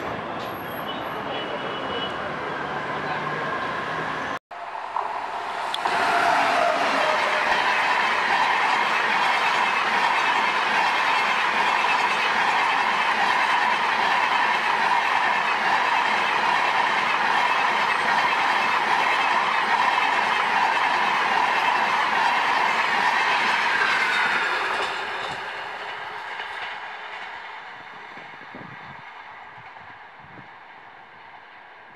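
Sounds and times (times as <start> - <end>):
train passing at speed: 0.0 - 31.9
steel wheels on rails: 2.5 - 31.9.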